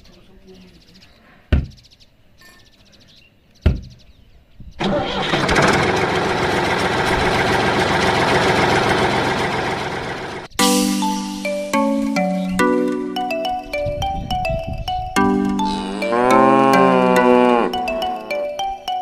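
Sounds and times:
tractor engine running: 0:04.8 - 0:10.5.

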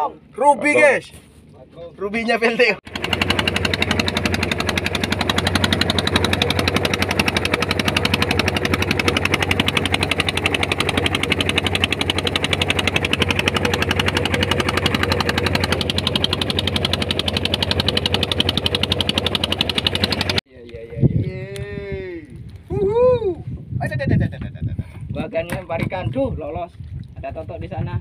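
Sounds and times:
boat engine chattering: 0:02.3 - 0:20.4.

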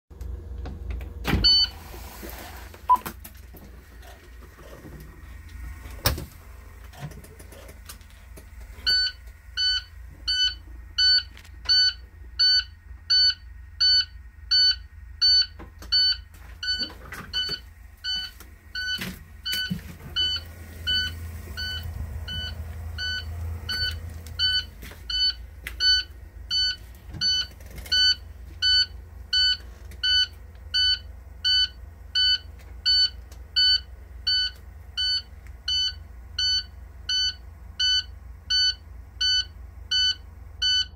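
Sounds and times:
low steady rumble: 0:00.1 - 0:40.9
dashboard warning buzzer beeping: 0:08.8 - 0:40.9.

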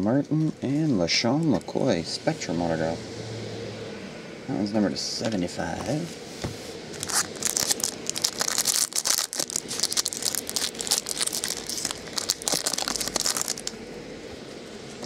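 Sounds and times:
plastic wrapping crinkling: 0:07.0 - 0:13.8.

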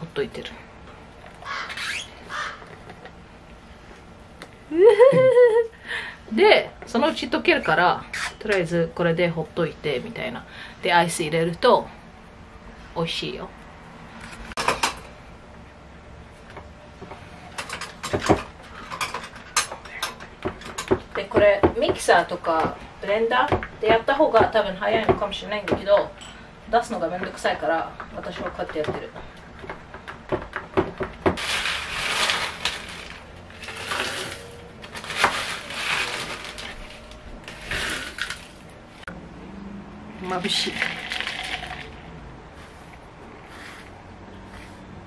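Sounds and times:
ice cubes rattling in metal tumbler: 0:31.4 - 0:38.6, 0:40.3 - 0:42.0
plastic bag crinkling: 0:31.4 - 0:38.7, 0:40.6 - 0:42.0
ice clinking: 0:40.6 - 0:42.0.

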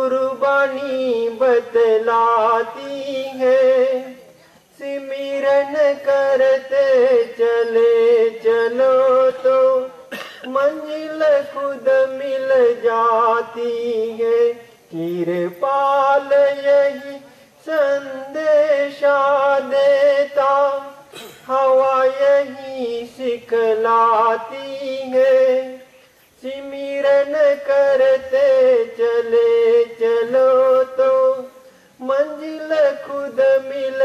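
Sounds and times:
devotional singing: 0:00.0 - 0:34.0.

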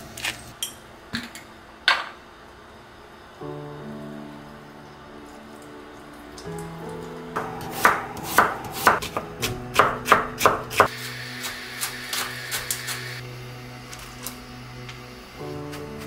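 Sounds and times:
soft background music: 0:02.9 - 0:16.0
knife chopping on wooden board: 0:07.4 - 0:11.0.

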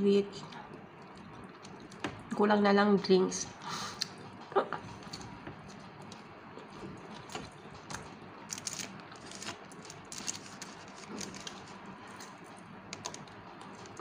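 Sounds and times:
chewing with wet mouth clicks: 0:00.4 - 0:02.3, 0:04.0 - 0:14.0
rustles of foil tray: 0:08.5 - 0:12.4.

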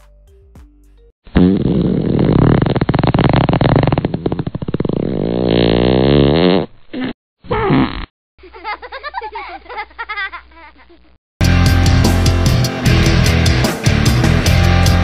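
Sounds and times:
comedic fart sound effect: 0:01.3 - 0:08.1
music with steady bass: 0:11.4 - 0:15.0.

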